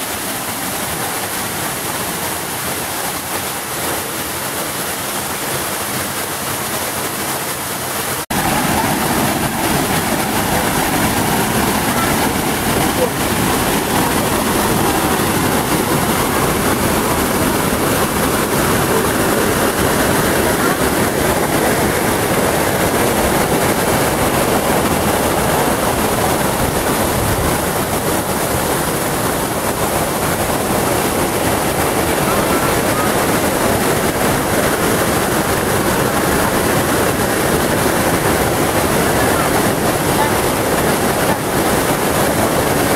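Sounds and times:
waterfall rushing: 0.0s - 42.9s.

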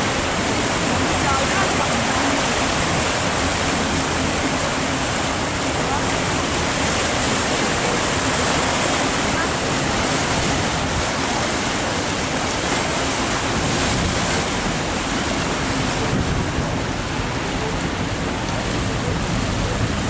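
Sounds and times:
water churning along hull: 0.0s - 20.0s
wind buffeting microphone: 0.0s - 20.0s.

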